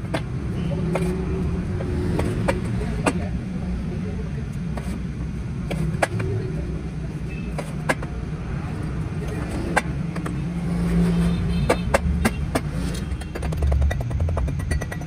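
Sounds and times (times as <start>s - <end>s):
battery plates clicking and tapping: 5.6s - 6.6s, 7.4s - 8.2s, 9.0s - 15.0s.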